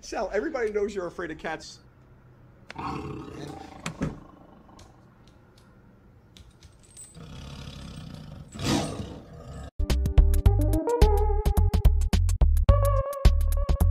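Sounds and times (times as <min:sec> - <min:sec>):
tiger roaring: 0:02.7 - 0:05.1, 0:07.2 - 0:09.7.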